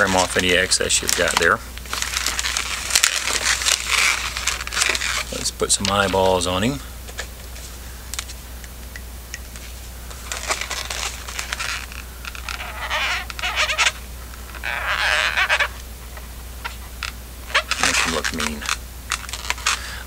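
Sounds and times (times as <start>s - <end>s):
balloons squeaking and rubbing: 0.0s - 6.8s, 9.5s - 20.0s
marker pen squeaky scratching: 11.5s - 15.8s, 17.5s - 18.8s.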